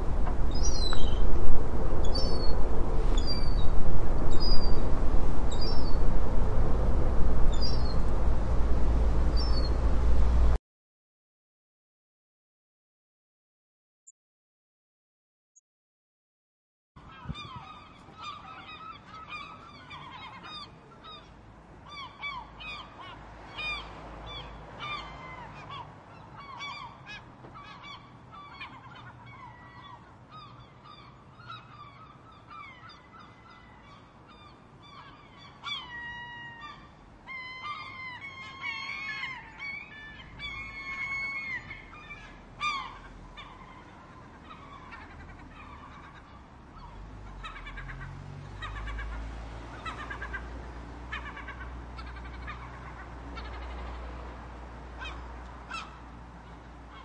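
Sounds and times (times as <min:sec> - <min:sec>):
seagulls calling: 0:00.0 - 0:06.0, 0:07.4 - 0:08.4, 0:09.0 - 0:10.6, 0:17.0 - 0:57.0
low steady rumble: 0:00.0 - 0:10.6.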